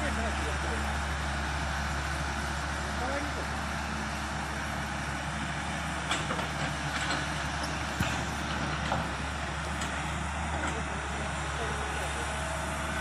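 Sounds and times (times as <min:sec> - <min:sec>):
excavator diesel engine running: 0:00.0 - 0:13.0
sharp knocks: 0:07.8 - 0:09.1.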